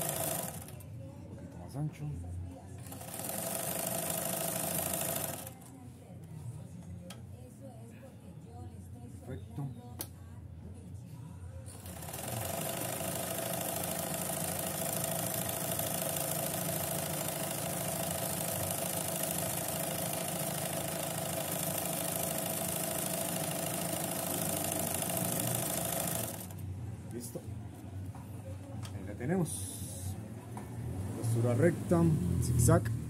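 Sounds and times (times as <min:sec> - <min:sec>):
sewing machine running: 0:00.0 - 0:00.7, 0:02.8 - 0:05.6, 0:11.7 - 0:26.6.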